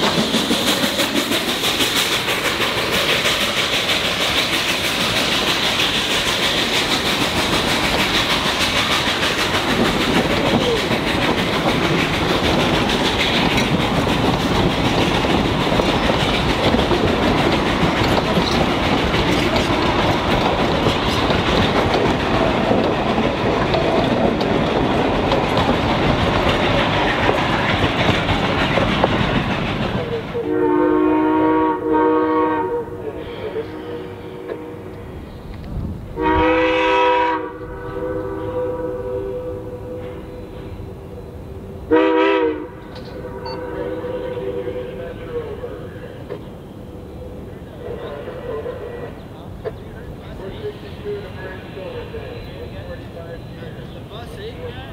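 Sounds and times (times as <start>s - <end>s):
train wheels clattering over rail joints: 0.0s - 30.4s
steam locomotive whistle: 30.4s - 34.9s, 36.2s - 40.3s, 41.9s - 45.0s.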